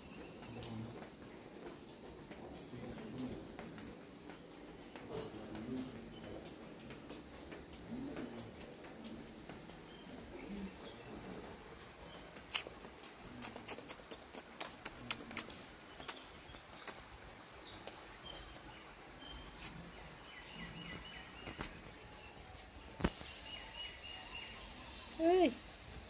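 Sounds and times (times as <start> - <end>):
footsteps on wooden floor: 0.0 - 13.3
bird chirping: 0.0 - 26.0.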